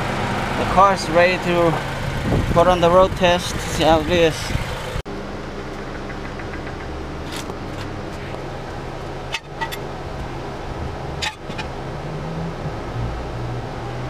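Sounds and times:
car engine idling: 0:00.0 - 0:11.9.

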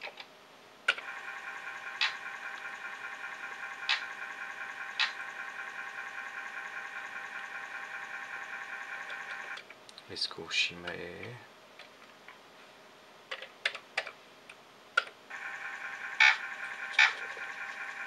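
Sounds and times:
disk drive motor whine: 0:00.9 - 0:09.7, 0:15.3 - 0:18.0.

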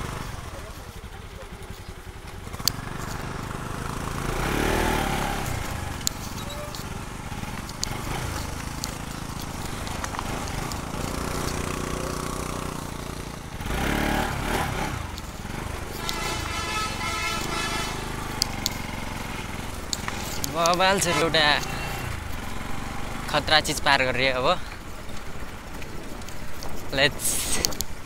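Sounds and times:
motorcycle engine running: 0:00.0 - 0:28.0
clicks and knocks from motorcycle: 0:05.6 - 0:11.8, 0:24.7 - 0:28.0.

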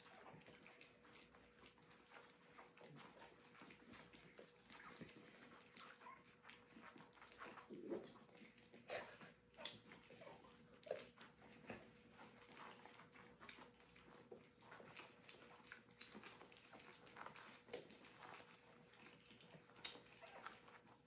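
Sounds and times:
puppies licking and lapping: 0:00.0 - 0:21.0.

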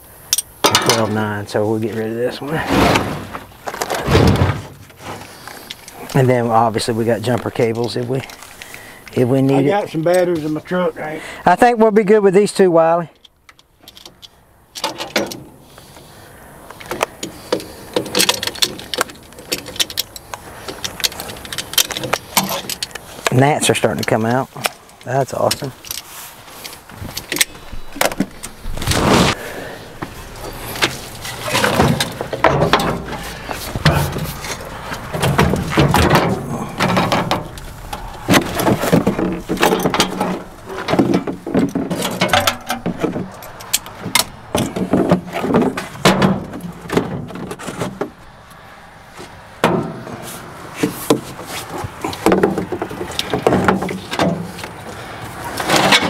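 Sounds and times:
metal tools clanking and scraping: 0:00.3 - 0:10.6, 0:13.2 - 0:15.6, 0:16.9 - 0:28.6, 0:30.2 - 0:48.0, 0:55.5 - 0:56.0.

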